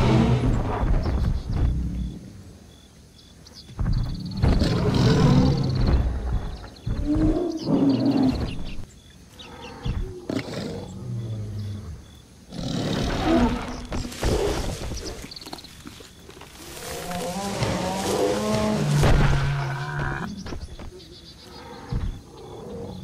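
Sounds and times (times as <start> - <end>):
large animal roaring: 16.7 - 20.4.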